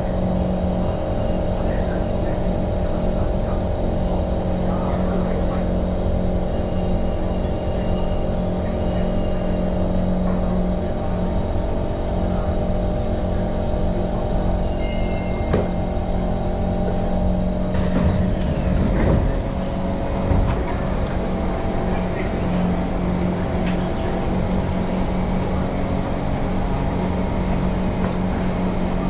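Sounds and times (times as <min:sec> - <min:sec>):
train rumble and hum: 0:00.0 - 0:29.0
high whine falling in pitch: 0:14.4 - 0:25.1.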